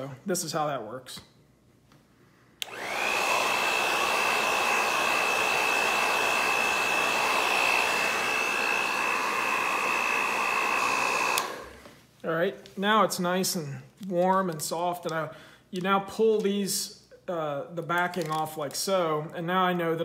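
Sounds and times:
hair dryer switch click: 2.6 - 11.7
hair dryer whining: 2.6 - 12.1.

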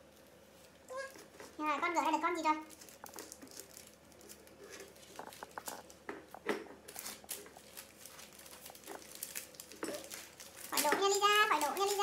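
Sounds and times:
parchment paper crinkling: 0.0 - 12.0.

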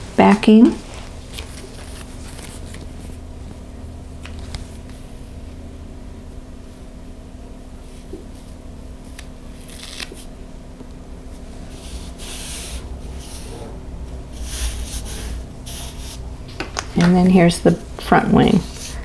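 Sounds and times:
faint steady hum: 0.0 - 19.0
fabric and paper rustling: 0.2 - 3.2.

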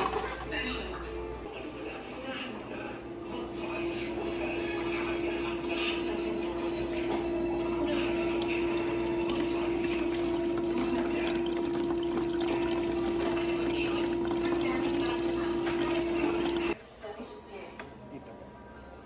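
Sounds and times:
water pump humming: 1.5 - 16.8
water trickling and splashing: 7.8 - 16.8.

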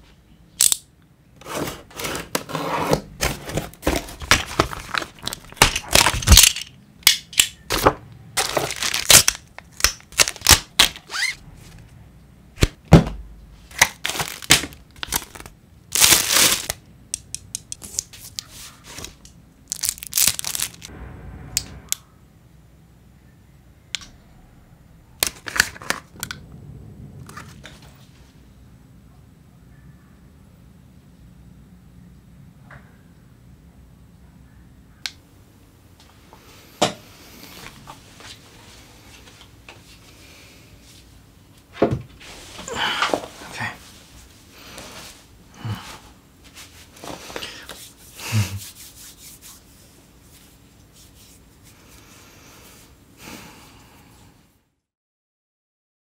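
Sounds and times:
plastic wrap crinkling: 3.5 - 6.6, 8.4 - 11.3, 13.7 - 16.8, 18.9 - 20.9
cardboard tearing: 13.7 - 16.7, 19.0 - 20.9.

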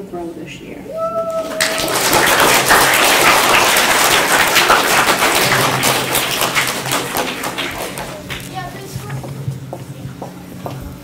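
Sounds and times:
audience applauding: 1.4 - 8.7.

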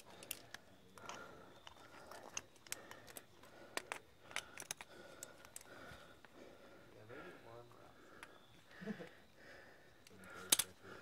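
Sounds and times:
carabiners clinking together: 10.3 - 10.8.

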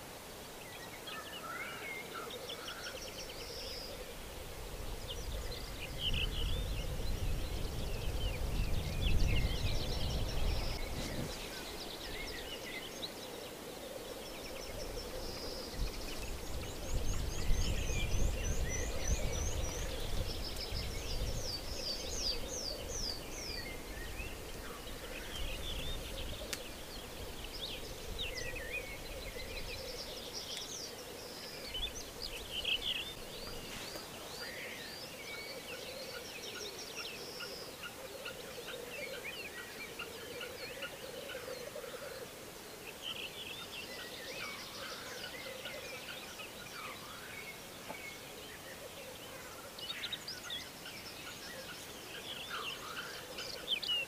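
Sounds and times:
small songbirds singing: 0.0 - 54.0
black grouse bubbling chorus: 35.2 - 47.3.

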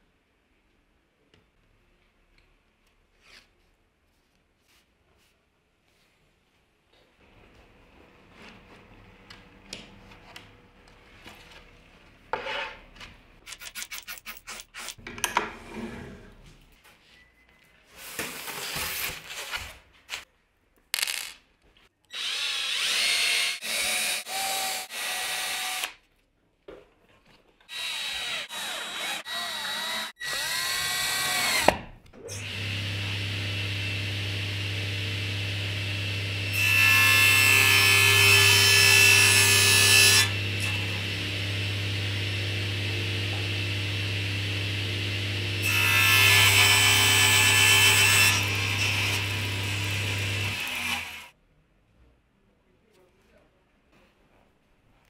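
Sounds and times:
cordless drill driving screws: 22.1 - 26.0
table saw motor humming: 32.4 - 51.2.

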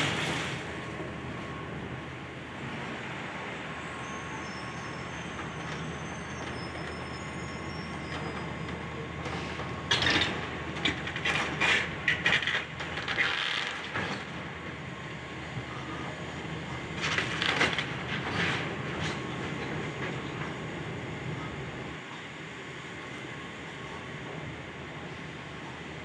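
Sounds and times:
excavator engine drone: 0.0 - 26.0.

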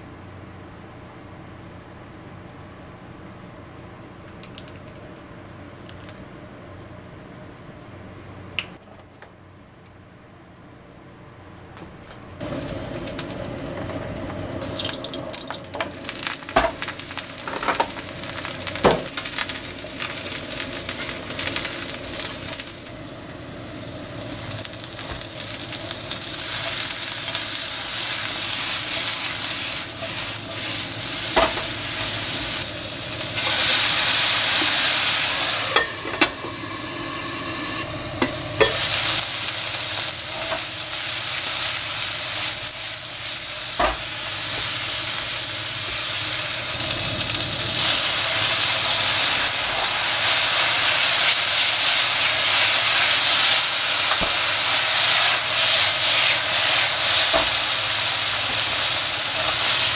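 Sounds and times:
food sizzling in oil: 12.4 - 59.9.

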